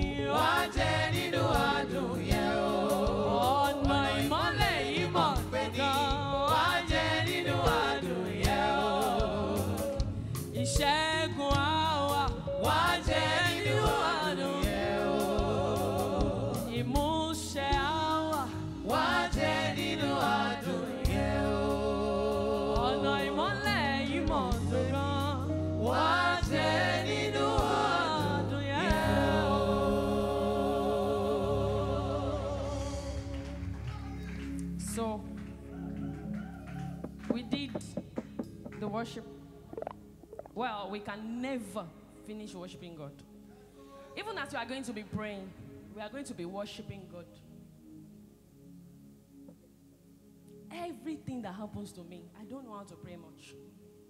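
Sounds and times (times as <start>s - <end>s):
backing singers: 0.0s - 10.2s, 12.3s - 16.9s, 18.3s - 34.4s
woman singing lead: 0.0s - 30.2s
bass guitar: 0.0s - 40.7s.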